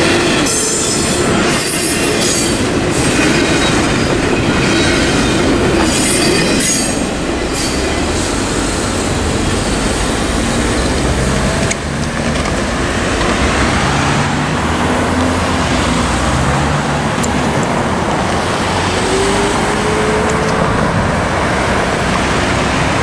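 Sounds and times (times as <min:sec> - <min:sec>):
cars driving over crossing: 0:00.0 - 0:23.0
engine revving away: 0:18.1 - 0:23.0.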